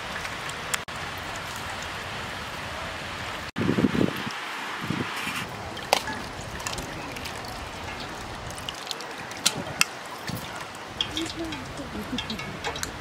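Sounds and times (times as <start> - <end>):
juice trickling into water: 5.4 - 13.0.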